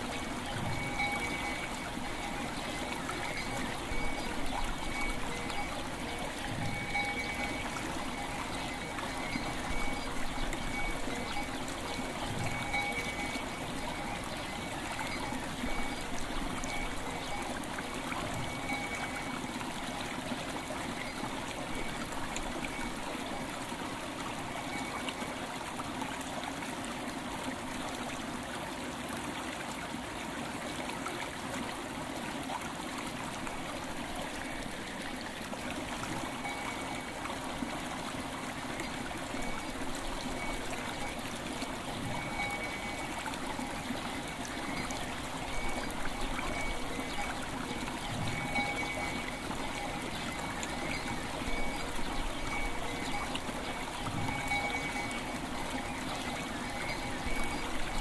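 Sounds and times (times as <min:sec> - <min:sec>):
faint ringing bell tones: 0:00.0 - 0:20.0, 0:24.5 - 0:25.3, 0:36.0 - 0:37.4, 0:38.8 - 0:58.0
river water flowing: 0:00.0 - 0:58.0.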